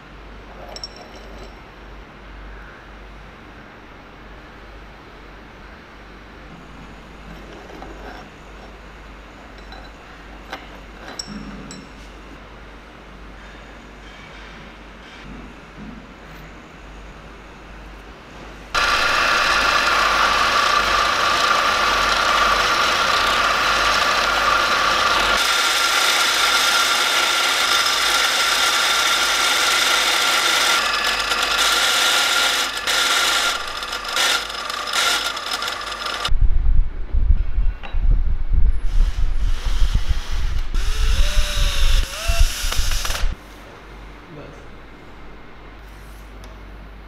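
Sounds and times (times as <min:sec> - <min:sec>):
power tool whining: 0:18.8 - 0:36.3, 0:38.9 - 0:43.4
loud low rumble: 0:36.3 - 0:43.3.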